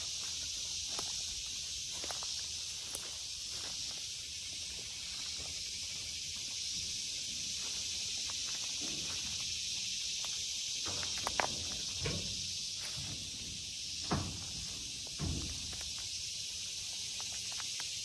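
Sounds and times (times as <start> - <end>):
footsteps: 0.0 - 16.2
brush rustling: 0.0 - 18.0
high-pitched insect chorus: 0.0 - 18.0.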